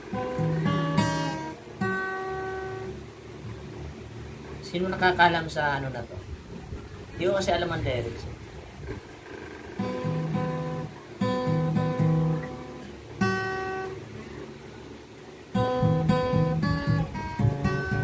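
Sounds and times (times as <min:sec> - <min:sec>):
acoustic guitar strumming: 0:00.0 - 0:05.1, 0:08.9 - 0:18.0.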